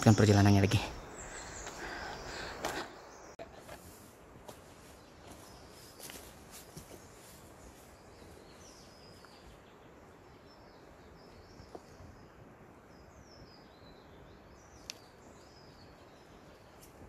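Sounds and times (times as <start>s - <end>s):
low steady hiss: 0.0s - 17.0s
faint bird chirps: 4.8s - 17.0s.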